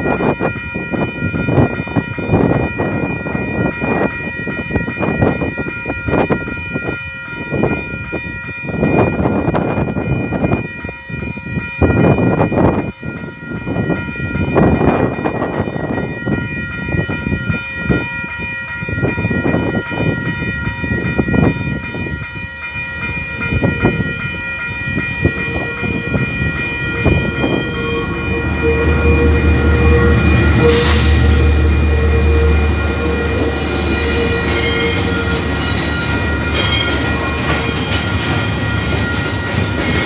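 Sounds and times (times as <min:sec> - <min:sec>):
level crossing bells ringing: 0:11.5 - 0:40.0
diesel locomotive rumbling: 0:13.6 - 0:40.0.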